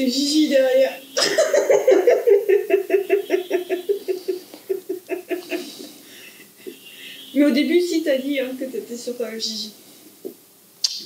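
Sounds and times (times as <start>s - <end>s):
person giggling: 1.2s - 6.8s.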